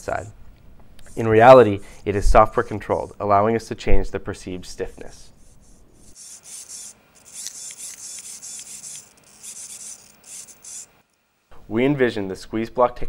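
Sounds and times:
device whirring high and raspy: 0:06.1 - 0:11.2.

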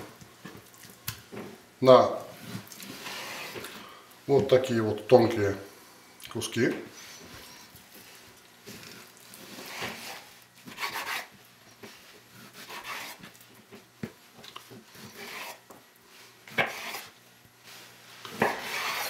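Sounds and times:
knife slicing raw meat: 0:08.7 - 0:11.3, 0:12.4 - 0:13.4, 0:15.0 - 0:15.6, 0:16.5 - 0:17.2, 0:18.3 - 0:19.0.

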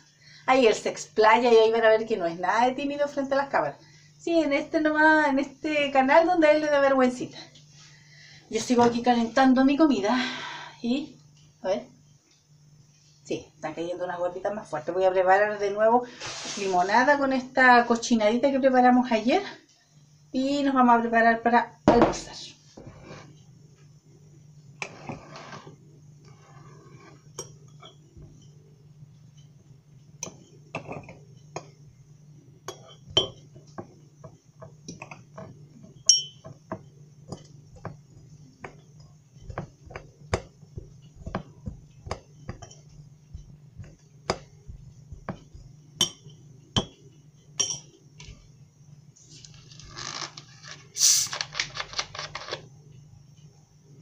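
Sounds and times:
spoon clinking against glass: 0:32.7 - 0:33.4, 0:36.1 - 0:36.6, 0:46.0 - 0:46.9, 0:47.6 - 0:47.9.

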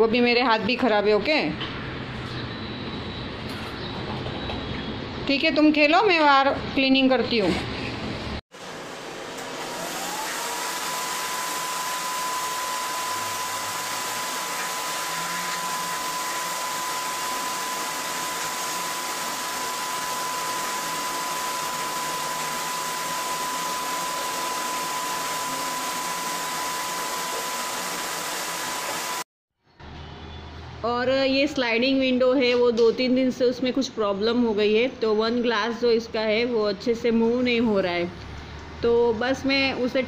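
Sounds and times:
vacuum cleaner running: 0:08.5 - 0:29.3.

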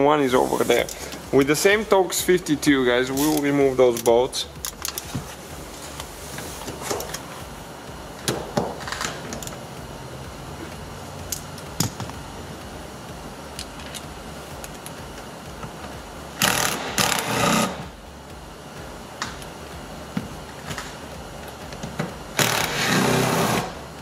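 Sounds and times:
cordless power driver running: 0:08.8 - 0:18.0, 0:20.7 - 0:23.8.

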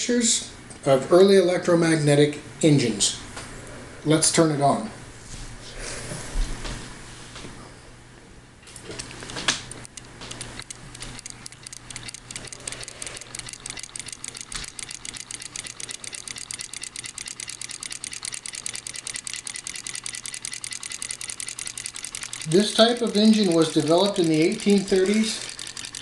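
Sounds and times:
model engine clicking rhythmically: 0:09.8 - 0:26.0.

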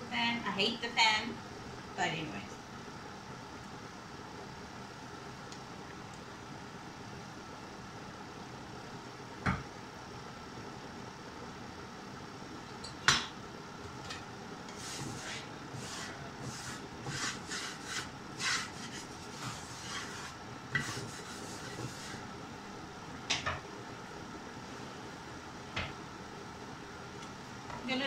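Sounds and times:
extractor fan humming: 0:00.0 - 0:28.0
spatula scraping in frying pan: 0:14.7 - 0:22.3.

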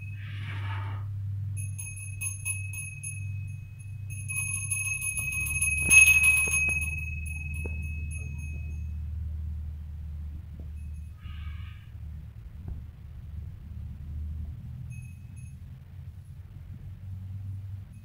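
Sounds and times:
small hand bell ringing: 0:00.0 - 0:00.2, 0:01.4 - 0:09.2, 0:10.6 - 0:11.6, 0:14.6 - 0:16.0
steady low hum: 0:00.0 - 0:18.0.

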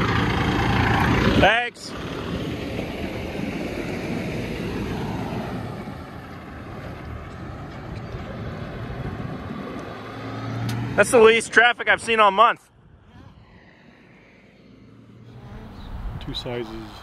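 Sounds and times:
truck diesel engine: 0:00.0 - 0:17.0
tyres on road: 0:00.0 - 0:17.0
wind buffeting microphone: 0:07.4 - 0:10.1, 0:15.4 - 0:17.0.

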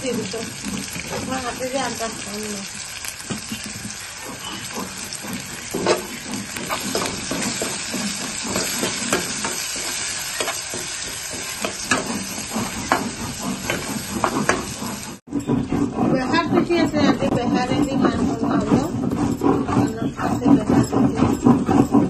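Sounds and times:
vegetables sizzling in oil: 0:00.0 - 0:15.2
spatula scraping pan: 0:00.0 - 0:22.0.

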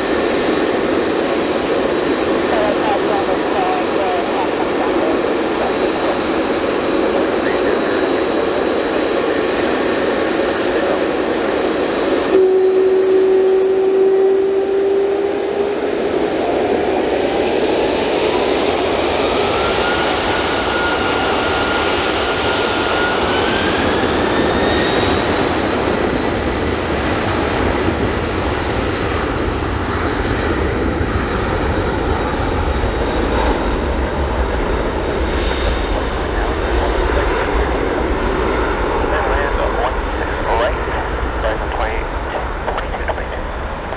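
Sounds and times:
deep rumble of takeoff roll: 0:00.0 - 0:12.3, 0:23.8 - 0:43.9
jet engine whine: 0:00.0 - 0:43.9
jet roar: 0:00.0 - 0:43.9.

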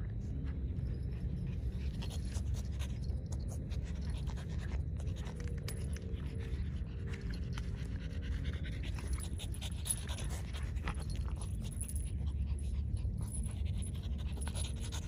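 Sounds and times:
dogs panting: 0:00.0 - 0:15.0.

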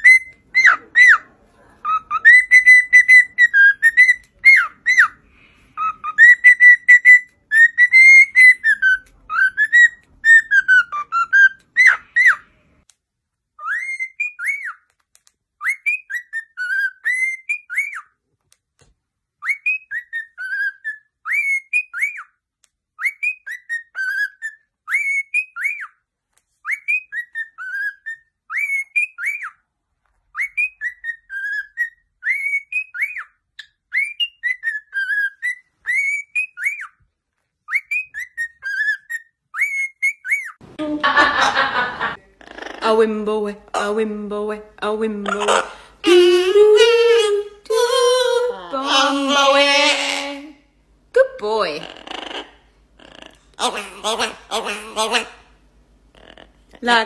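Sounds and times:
cockatiel whistling: 0:00.0 - 0:01.2, 0:01.9 - 0:05.2, 0:05.8 - 0:12.5, 0:13.6 - 0:14.8, 0:15.6 - 0:18.1, 0:19.4 - 0:22.3, 0:23.0 - 0:25.9, 0:26.6 - 0:29.6, 0:30.3 - 0:37.0, 0:37.7 - 0:40.6.

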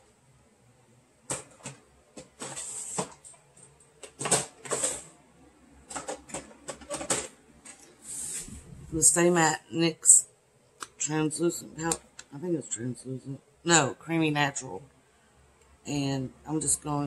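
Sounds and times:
plastic drawers sliding: 0:01.3 - 0:03.4, 0:04.0 - 0:05.2, 0:05.9 - 0:08.9.

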